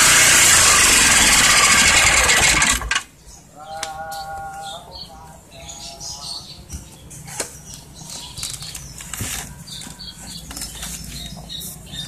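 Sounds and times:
generator engine running: 0.0s - 3.2s.

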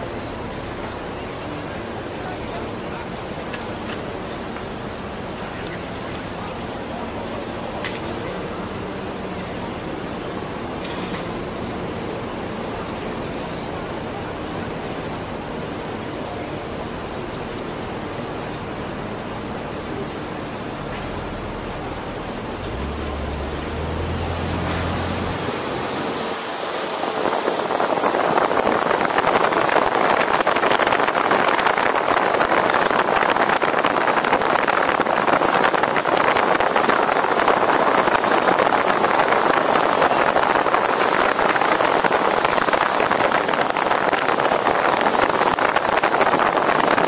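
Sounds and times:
wind rushing over microphone: 22.6s - 47.0s.

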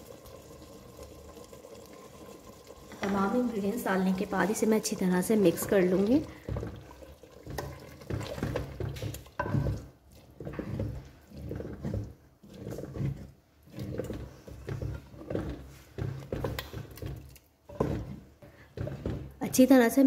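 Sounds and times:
thick curry sloshing: 0.1s - 19.7s
spatula scraping pot: 0.3s - 20.0s.

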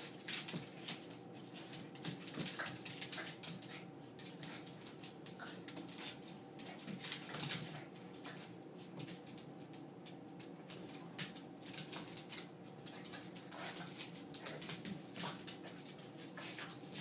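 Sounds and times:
dog claws clicking on wood floor: 0.0s - 17.0s.

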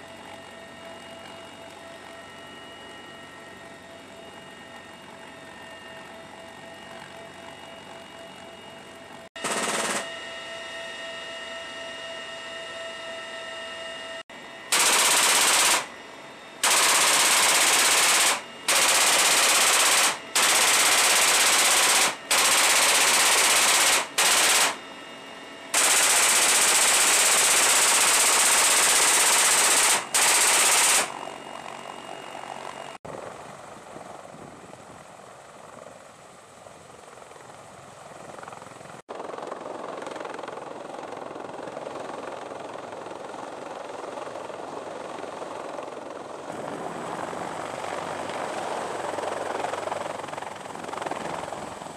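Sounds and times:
helicopter noise: 0.0s - 51.9s
machine gun bursts: 9.4s - 10.1s, 14.7s - 15.9s, 16.6s - 24.8s, 25.8s - 31.1s.

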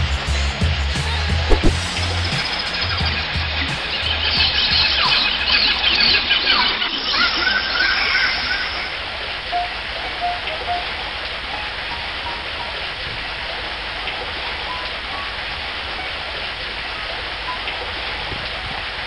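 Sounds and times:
faint high chirps: 4.0s - 12.8s.

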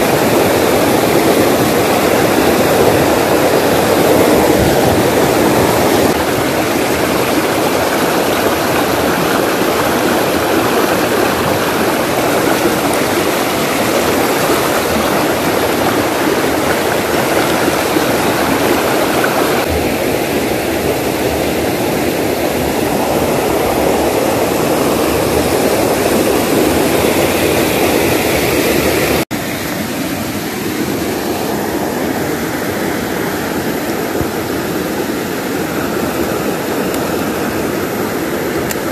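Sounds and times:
stream rushing over rocks: 0.0s - 38.9s.

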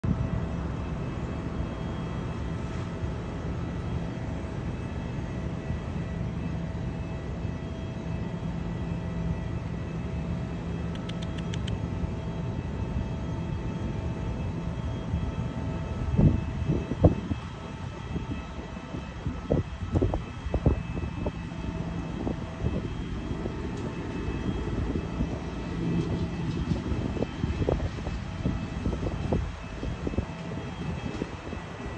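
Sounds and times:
faint steady tones: 0.0s - 31.9s
mechanical drone with low hum: 0.0s - 31.9s
faint high ticks: 10.9s - 11.8s.

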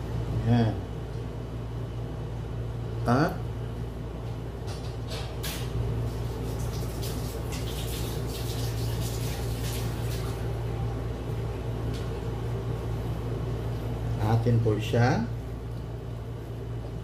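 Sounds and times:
steady low hum: 0.0s - 17.0s
water splashing from tap: 6.3s - 10.5s.

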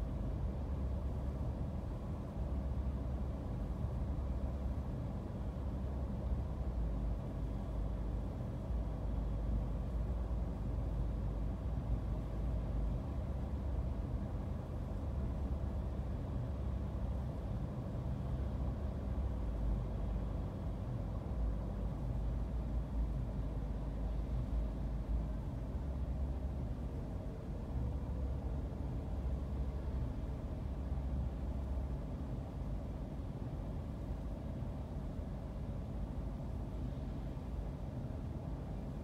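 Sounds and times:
faint steady hum: 0.0s - 39.0s.

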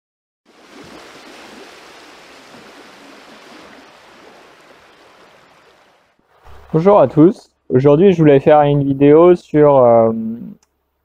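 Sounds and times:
running water rushing: 0.5s - 7.4s.

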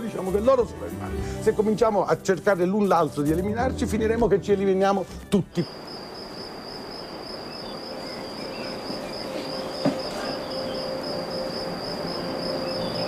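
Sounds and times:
cricket chirping: 5.4s - 13.0s.

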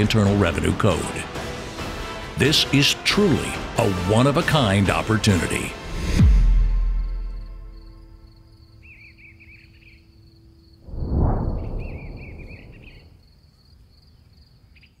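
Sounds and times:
deep rush of noise: 10.9s - 13.1s.

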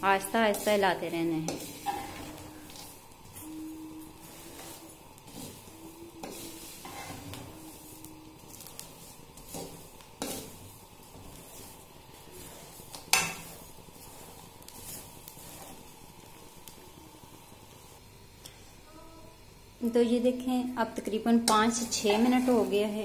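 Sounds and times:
spoon stirring in salt: 0.1s - 16.0s.

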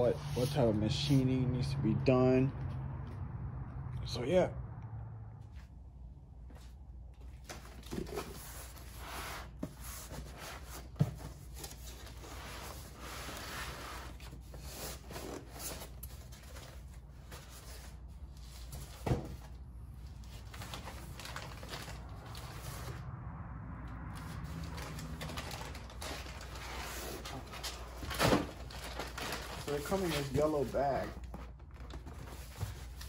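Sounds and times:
cardboard rustling and scraping: 7.2s - 23.0s, 24.2s - 33.0s.

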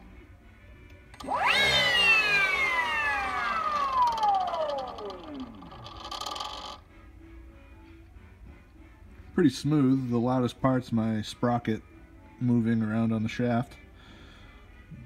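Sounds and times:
electric motor whining: 1.2s - 6.8s.

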